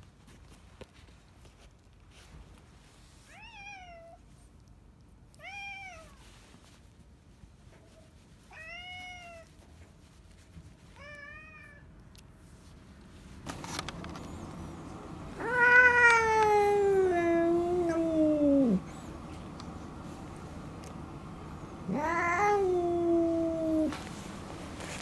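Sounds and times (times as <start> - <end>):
cat meowing: 5.3 - 6.2, 15.4 - 19.0, 21.8 - 24.0
cat yowling: 15.4 - 19.1, 21.8 - 24.0.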